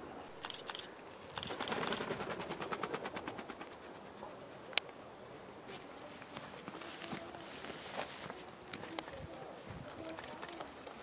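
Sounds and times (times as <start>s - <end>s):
sharp click: 0.4s - 1.6s
bird wings beating in flight: 0.4s - 4.3s.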